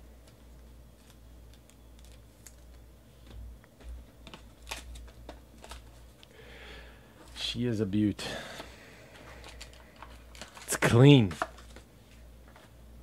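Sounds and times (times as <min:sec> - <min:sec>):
cellophane wrap crinkling: 0:01.0 - 0:02.8, 0:04.2 - 0:06.3, 0:09.2 - 0:11.8.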